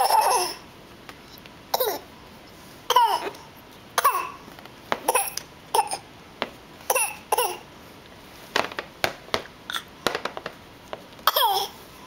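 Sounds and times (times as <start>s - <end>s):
baby fake coughing: 0.0s - 0.6s, 1.7s - 2.1s, 2.9s - 4.4s, 5.0s - 6.1s, 6.9s - 7.7s, 11.3s - 11.8s.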